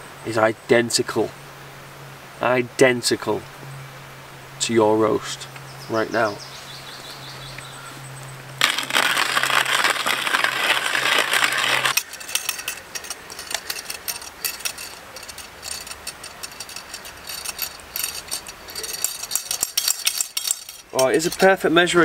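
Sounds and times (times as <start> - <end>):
hand coffee grinder crunching beans: 8.6 - 21.4.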